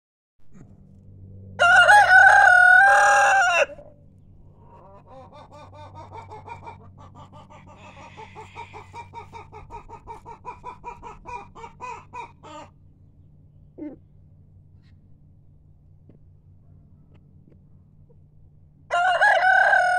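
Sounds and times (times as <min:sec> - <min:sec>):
rooster crowing: 0:01.6 - 0:04.0, 0:18.9 - 0:19.9
chicken clucking: 0:04.6 - 0:12.7.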